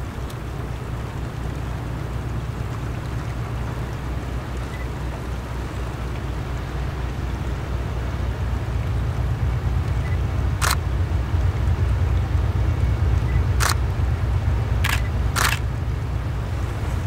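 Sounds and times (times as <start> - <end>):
diesel locomotive rumbling: 0.0 - 17.0
sharp clicks: 13.6 - 13.8, 14.8 - 15.7.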